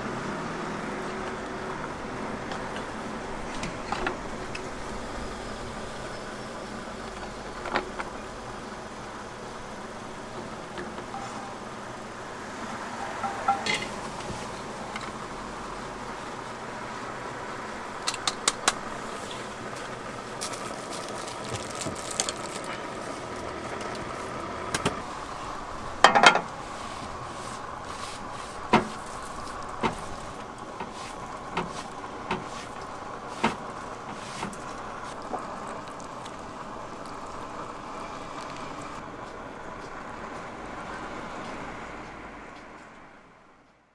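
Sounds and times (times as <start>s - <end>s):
steady background hum: 1.0s - 43.6s
utensils and dishes clinking: 13.0s - 14.0s.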